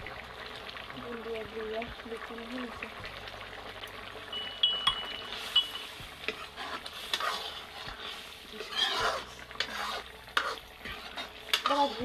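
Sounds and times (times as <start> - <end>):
ladle scraping metal pan: 5.1 - 12.0
ladle swishing through curry: 5.3 - 12.0.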